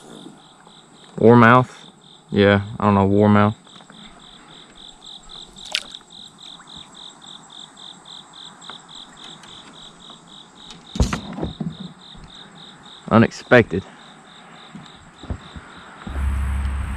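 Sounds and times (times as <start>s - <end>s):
insect chirping: 0.0s - 16.9s
loud thump: 16.1s - 16.9s.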